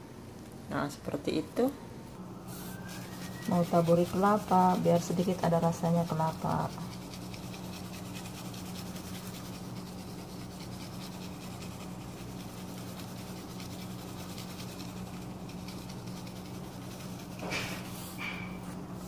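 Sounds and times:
steady low hum: 0.0 - 19.0
coconut rustling from plastic packet: 2.6 - 4.8.

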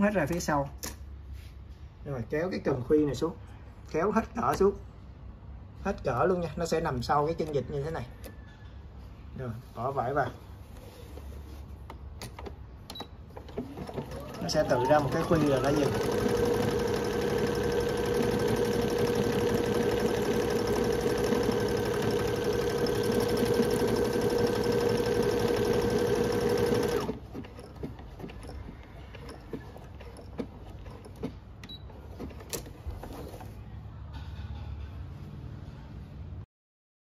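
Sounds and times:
sewing machine stitching: 13.3 - 33.4.

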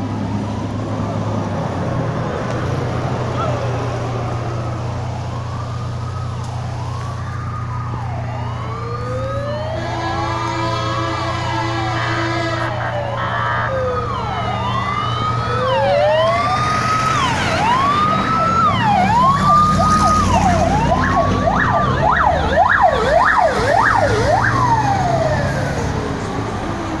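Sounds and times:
fire engine siren wailing: 0.0 - 27.0
fire truck engines running: 0.0 - 27.0
air horn tone: 9.8 - 13.8.

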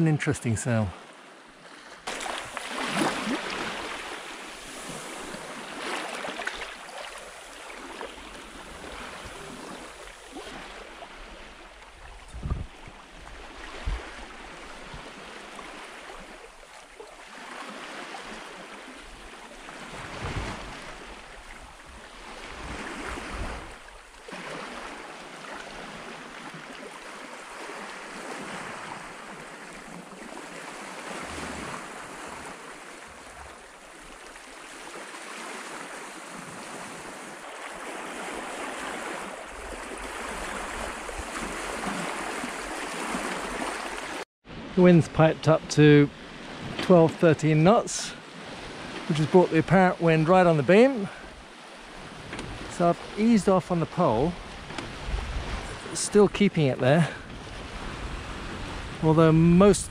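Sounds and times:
water rushing along hull: 0.0 - 59.9
wind buffeting microphone: 12.0 - 14.2, 54.4 - 55.9, 57.2 - 59.0.

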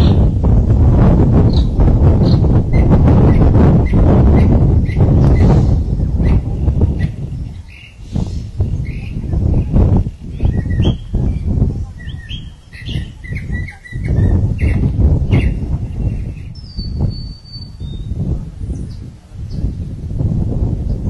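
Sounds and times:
low rumbling noise: 0.0 - 21.0
small birds chirping: 1.4 - 19.8.

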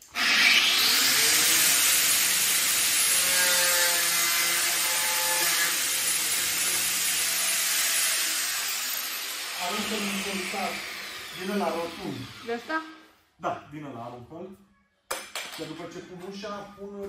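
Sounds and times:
angle grinder cutting: 0.0 - 13.0.

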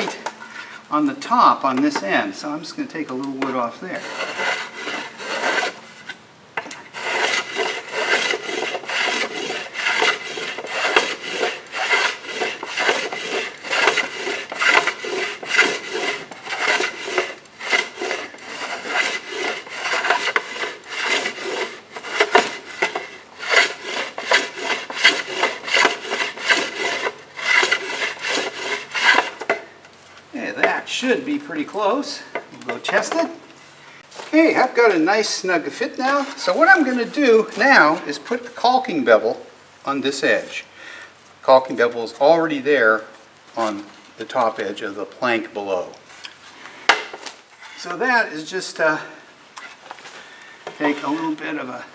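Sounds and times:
hand tool shaving wood: 0.0 - 29.7, 30.4 - 33.5, 34.2 - 38.8, 50.8 - 51.7.

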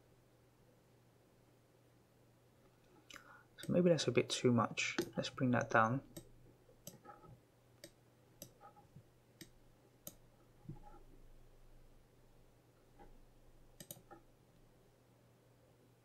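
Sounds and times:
faint low hum: 0.0 - 16.0
computer mouse clicks: 6.1 - 8.8, 9.4 - 11.0, 13.8 - 14.2.

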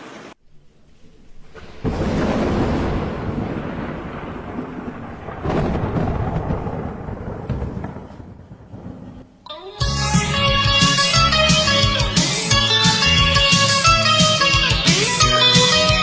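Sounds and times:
thunder rumbling: 0.4 - 12.1.

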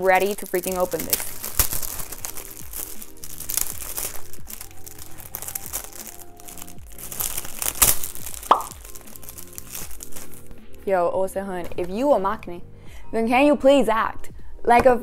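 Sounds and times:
plastic packaging crinkling: 0.0 - 10.8
background music: 0.0 - 15.0.

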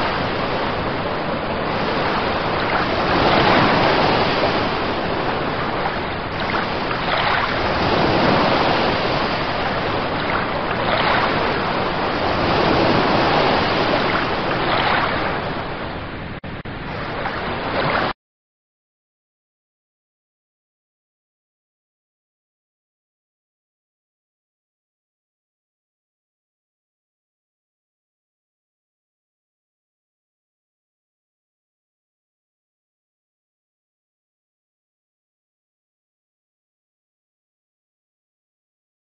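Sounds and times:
ocean waves breaking: 0.0 - 18.2.

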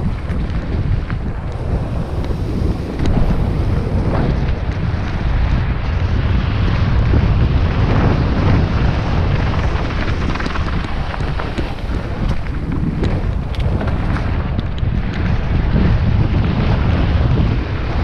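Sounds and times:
bike tyre rumble: 0.0 - 18.0
wind buffeting microphone: 0.0 - 18.0
sharp clicks and rattles: 9.4 - 15.4.

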